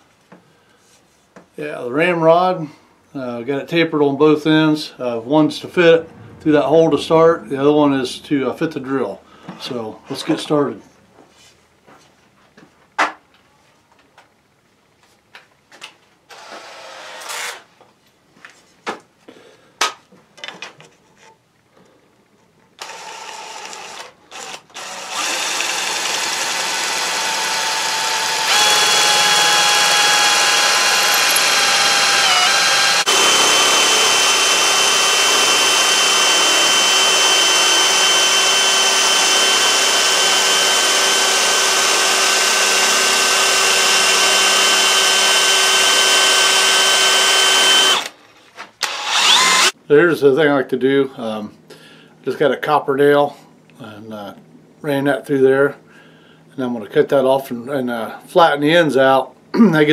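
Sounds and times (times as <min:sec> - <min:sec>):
electric drill whining: 0:16.3 - 0:17.6, 0:22.8 - 0:48.1, 0:48.8 - 0:49.8.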